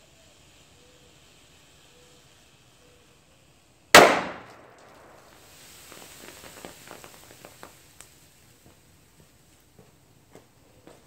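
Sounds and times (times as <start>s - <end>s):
hissing with pops and crackles: 0.0s - 11.0s
loud explosion bang: 4.0s - 5.2s.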